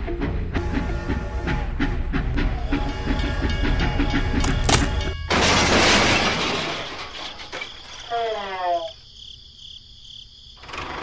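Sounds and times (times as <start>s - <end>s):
music with clicking beat: 0.0s - 5.2s
toy train crashing: 4.3s - 8.4s.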